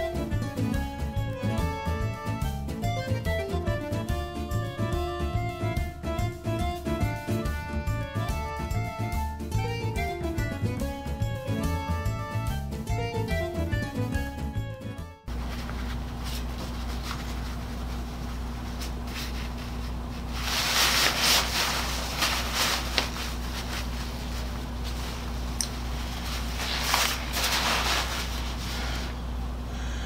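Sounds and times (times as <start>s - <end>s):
fabric rustling and rubbing: 15.3s - 29.2s
low hum: 15.3s - 30.0s.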